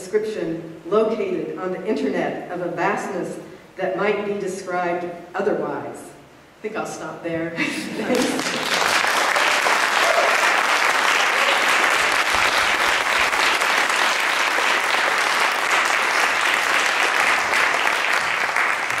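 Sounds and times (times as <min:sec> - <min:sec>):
audience applauding: 0:08.1 - 0:19.0.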